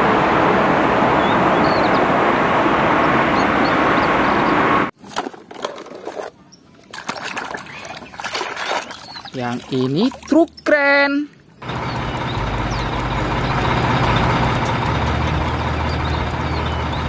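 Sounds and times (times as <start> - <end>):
water dripping: 6.9 - 13.8.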